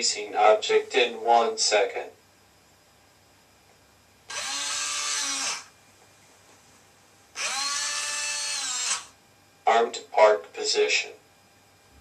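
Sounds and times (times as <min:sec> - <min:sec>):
electric motor whirring: 0:04.3 - 0:05.8, 0:07.3 - 0:09.2.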